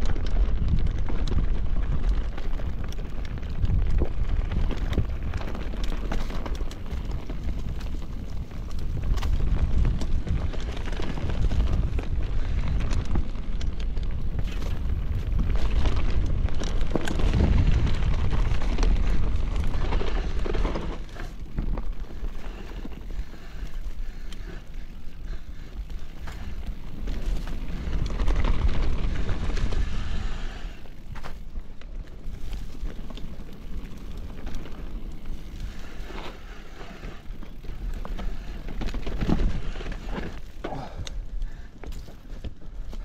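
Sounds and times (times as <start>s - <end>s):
bike rattling over stones: 0.0s - 43.0s
wind rumbling on microphone: 0.0s - 43.0s.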